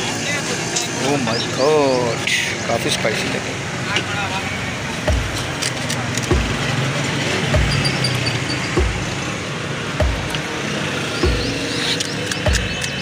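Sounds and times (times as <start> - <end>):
street traffic: 0.0 - 13.0
music with deep beat: 5.0 - 13.0.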